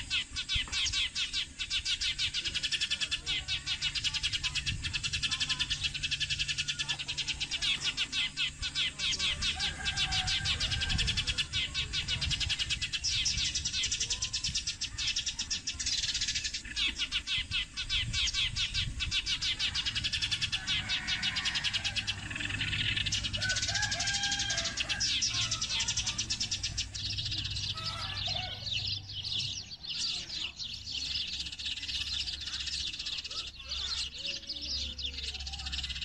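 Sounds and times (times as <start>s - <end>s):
sparrows chirping: 0.0s - 36.0s.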